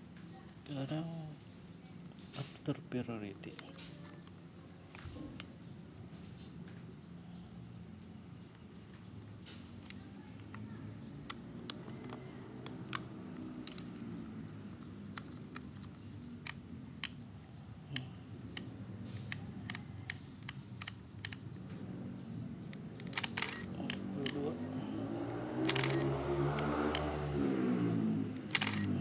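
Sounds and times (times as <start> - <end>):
sharp plastic camera clicks: 11.3 - 17.2, 18.5 - 21.7, 22.7 - 24.9, 25.6 - 27.1, 27.8 - 29.0.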